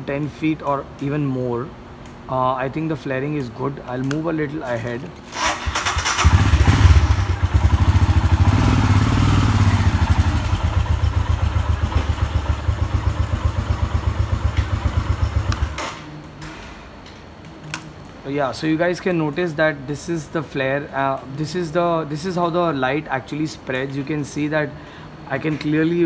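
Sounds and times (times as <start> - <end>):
motorcycle engine running: 5.7 - 15.8.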